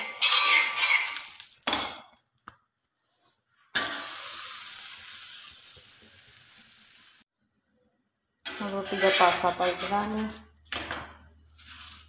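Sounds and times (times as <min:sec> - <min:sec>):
flatbread sizzling in ghee: 0:00.0 - 0:01.9, 0:03.8 - 0:07.3.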